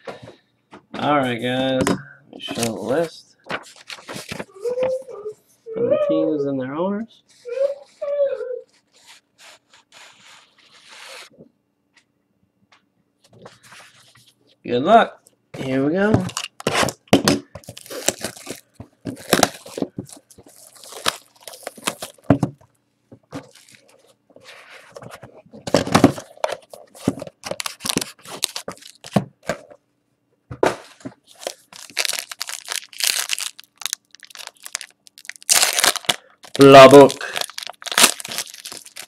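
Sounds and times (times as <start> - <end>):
foil pack ripping open: 17.6 - 22.3, 27.4 - 29.2, 31.3 - 39.0
plastic wrapping crinkling and tearing: 17.6 - 22.4, 23.4 - 24.1, 26.0 - 29.2, 31.3 - 39.0.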